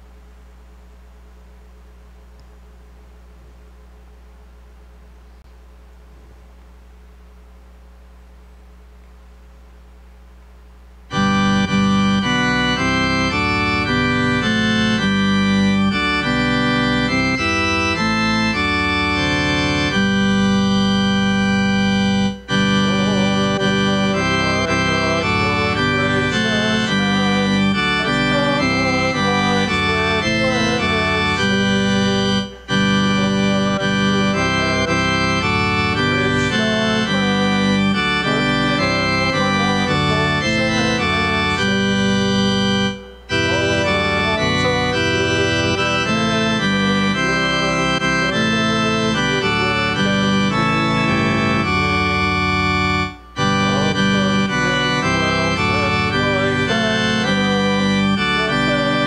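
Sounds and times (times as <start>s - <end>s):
church organ playing a hymn: 11.1s - 59.0s.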